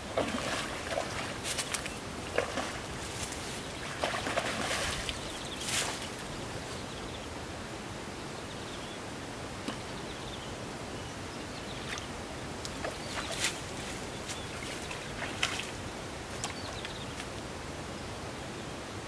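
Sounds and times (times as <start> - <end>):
fish splashing in water: 0.0 - 6.2
steady outdoor hiss: 0.0 - 19.0.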